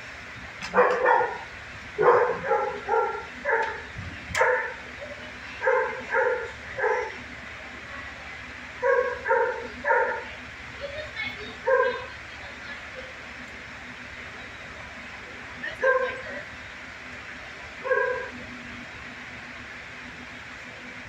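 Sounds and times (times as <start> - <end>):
dog barking: 0.7 - 1.4, 2.0 - 3.8, 4.4 - 4.8, 5.6 - 7.2, 8.8 - 10.3, 11.6 - 12.1, 15.8 - 16.2, 17.8 - 18.4.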